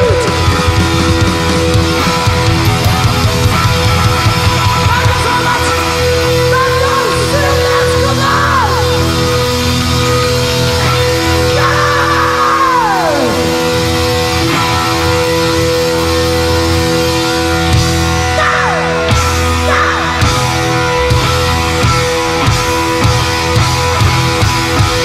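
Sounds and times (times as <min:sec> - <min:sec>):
heavy metal band playing live: 0:00.0 - 0:25.0.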